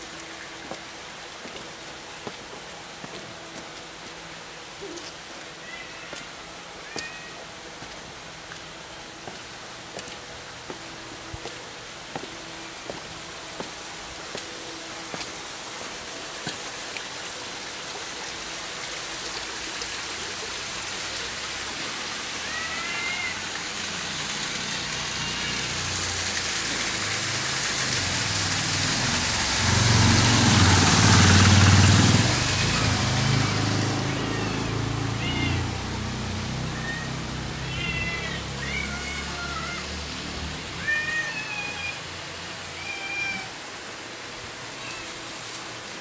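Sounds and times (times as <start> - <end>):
cats meowing: 5.6 - 7.5, 22.4 - 23.5, 32.6 - 35.8, 36.8 - 39.9, 40.8 - 42.0, 42.7 - 43.6
motor vehicle passing: 26.0 - 40.7.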